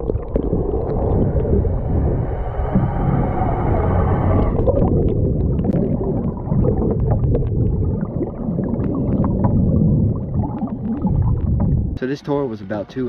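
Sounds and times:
underwater rumble and gurgle: 0.0s - 12.0s
small underwater clicks: 4.8s - 11.8s.

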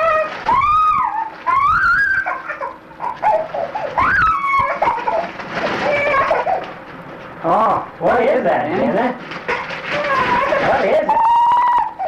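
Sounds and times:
puppy whimpering: 0.0s - 6.7s, 9.5s - 12.0s.

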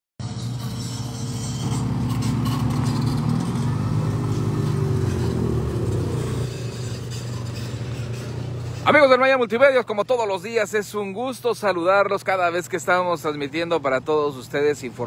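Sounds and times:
pickup truck passing: 0.2s - 9.6s
quiet traffic: 0.2s - 15.0s.

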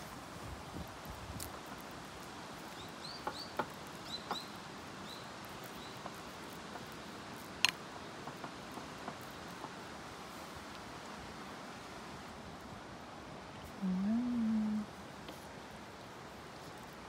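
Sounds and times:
small bird chirping: 2.7s - 6.1s.

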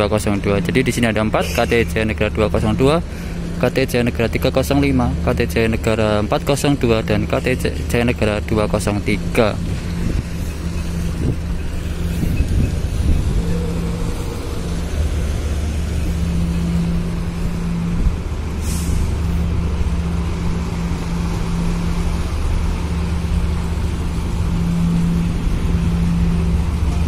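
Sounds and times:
diesel engines droning: 0.0s - 27.0s.

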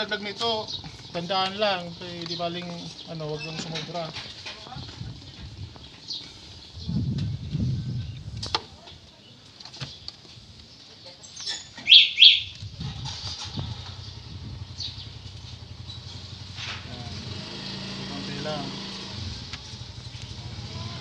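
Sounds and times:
short high chirps: 11.8s - 12.6s.

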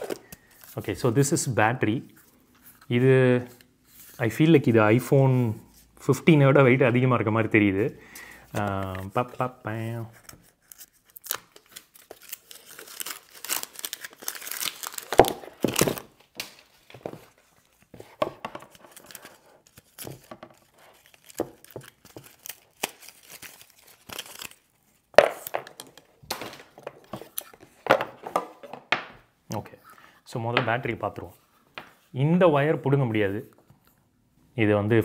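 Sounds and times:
plastic wrap crinkling and tearing: 10.5s - 16.9s, 18.6s - 25.8s.

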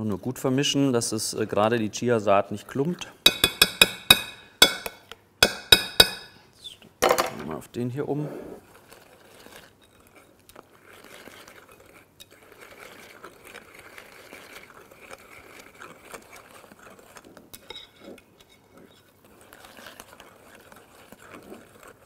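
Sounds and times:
whisk swishing in batter: 8.2s - 22.0s.

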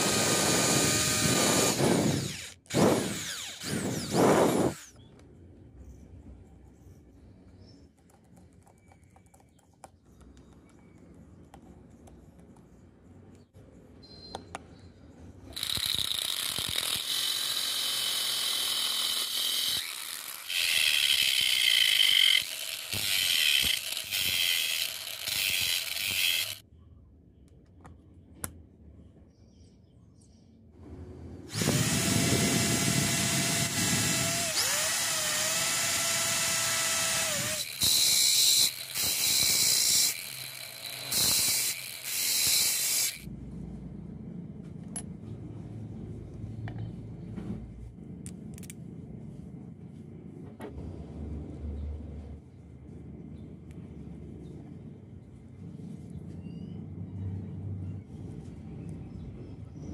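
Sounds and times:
angle grinder grinding metal: 0.0s - 4.9s, 15.6s - 26.6s, 31.5s - 43.3s
power tools running: 0.0s - 4.9s, 15.6s - 26.6s, 31.4s - 43.3s.

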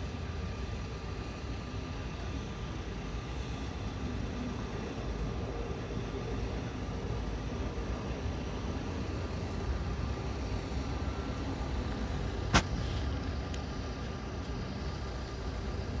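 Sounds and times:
distant city traffic rumble: 0.0s - 16.0s.

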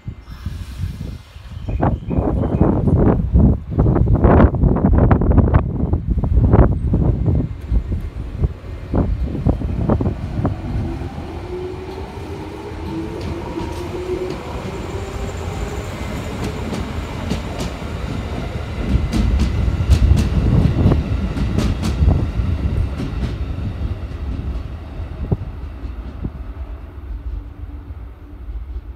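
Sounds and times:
train rumble: 0.0s - 28.9s
train wheels clicking over rail joints: 16.3s - 23.5s.

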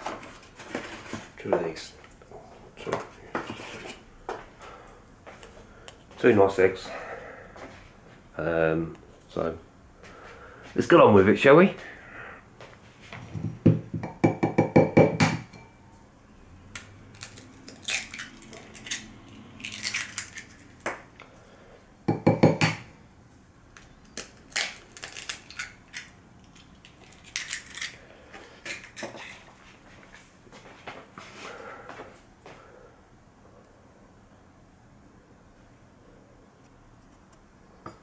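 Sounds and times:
eggshell crackling: 16.7s - 21.1s, 23.8s - 28.0s.

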